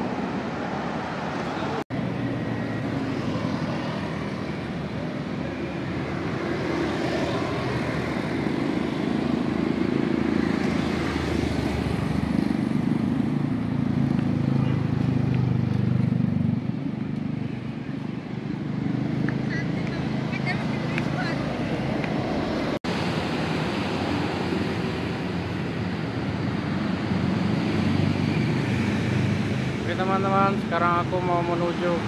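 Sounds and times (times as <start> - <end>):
city street traffic: 0.0 - 32.0.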